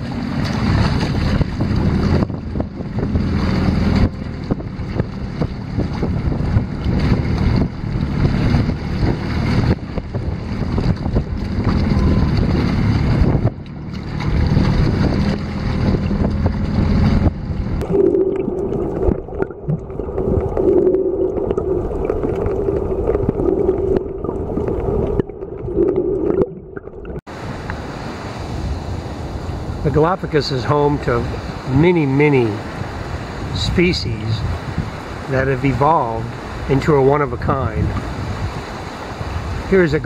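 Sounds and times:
underwater hum and gurgling: 0:00.0 - 0:29.9
wind on microphone: 0:00.0 - 0:40.0.

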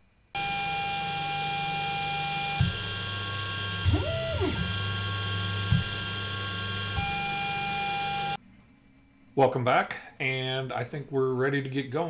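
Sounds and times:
printer stepper motors whining: 0:00.4 - 0:08.4.

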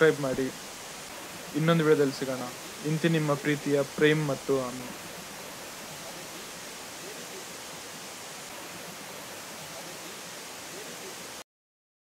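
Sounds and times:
waterfall rushing over rock: 0:00.0 - 0:11.4.

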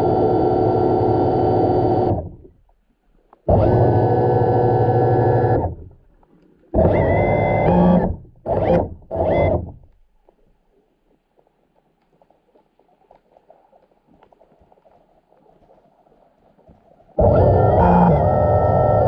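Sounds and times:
faint crackle: 0:01.8 - 0:03.6, 0:05.2 - 0:07.2, 0:09.3 - 0:19.0
distorted electric guitar chords: 0:17.2 - 0:19.0.

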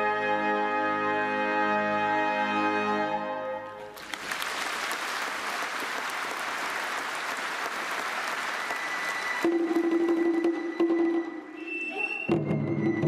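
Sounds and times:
audience applause: 0:03.9 - 0:10.2.

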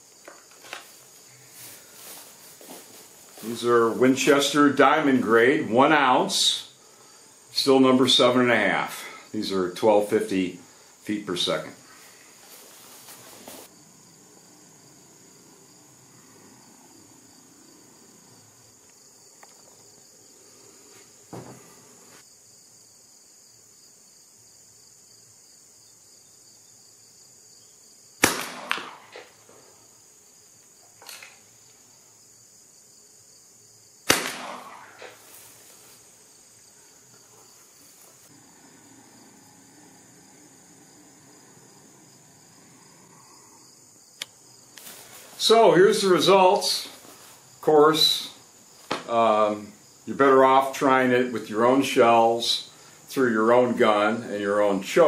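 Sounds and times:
high insect chirring: 0:10.3 - 0:51.0
shotgun shots echoing: 0:28.2 - 0:29.3, 0:34.1 - 0:35.2.

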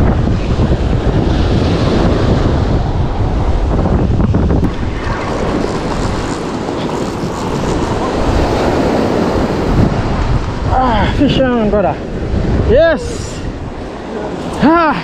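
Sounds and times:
surf washing up beach: 0:00.0 - 0:15.0
wind buffeting microphone: 0:00.0 - 0:15.0.

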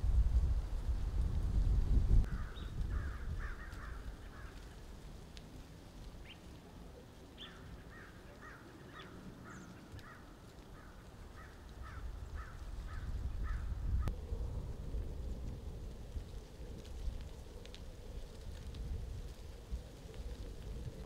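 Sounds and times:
wind rumble on microphone: 0:00.0 - 0:21.0
crows cawing: 0:02.3 - 0:04.8, 0:07.4 - 0:13.8.

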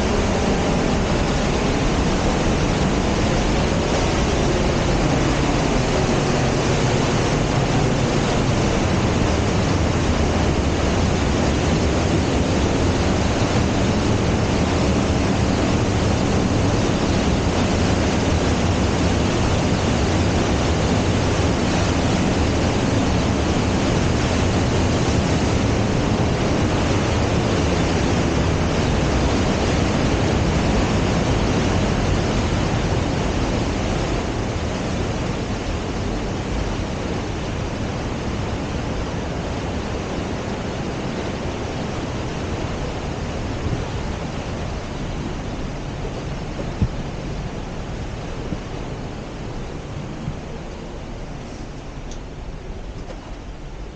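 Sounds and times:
water rushing through gorge: 0:00.0 - 0:53.9.

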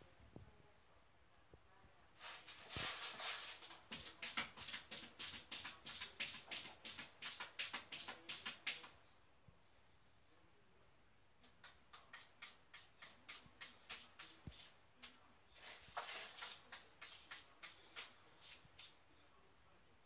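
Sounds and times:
cat scratching litter: 0:02.2 - 0:09.0, 0:11.4 - 0:19.1.

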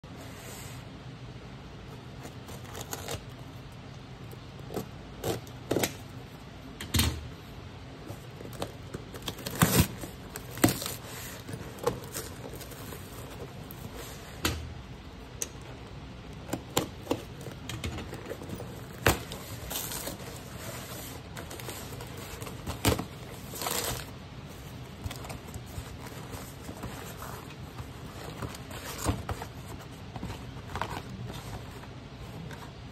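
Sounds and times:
scrapes and crinkles of cardboard: 0:02.0 - 0:03.5, 0:08.0 - 0:14.4, 0:16.5 - 0:32.9
cardboard tearing: 0:02.3 - 0:03.4, 0:08.2 - 0:14.2, 0:16.5 - 0:31.8
knife slitting cardboard parcel: 0:08.5 - 0:14.2.

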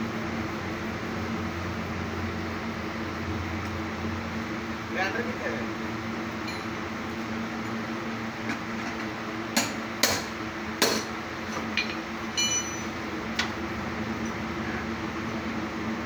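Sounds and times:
high metallic clink: 0:06.4 - 0:06.8, 0:11.8 - 0:12.9.

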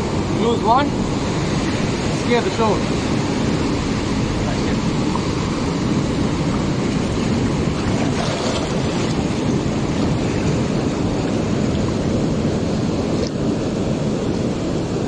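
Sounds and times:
wind on microphone: 0:00.0 - 0:15.0
surf breaking on rocks: 0:01.4 - 0:12.6.

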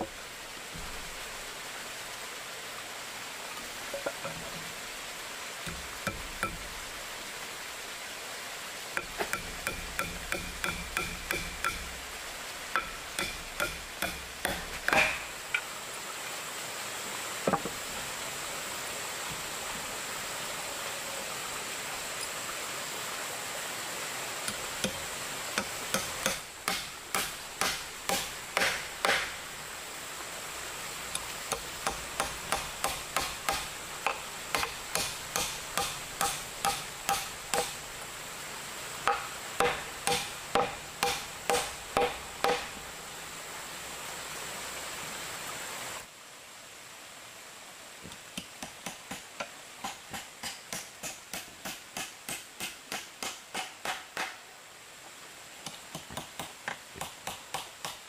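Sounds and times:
hand tool striking wood: 0:05.6 - 0:06.8, 0:09.0 - 0:12.1, 0:12.7 - 0:15.6, 0:24.5 - 0:29.4, 0:31.2 - 0:37.9, 0:39.0 - 0:42.8, 0:48.4 - 0:54.4, 0:55.7 - 0:58.0.

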